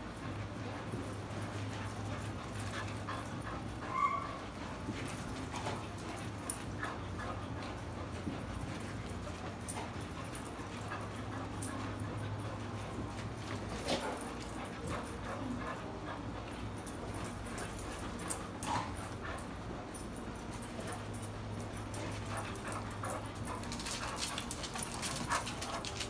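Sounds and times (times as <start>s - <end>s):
low steady hum: 0.0s - 26.0s
dog yelping: 3.8s - 4.6s.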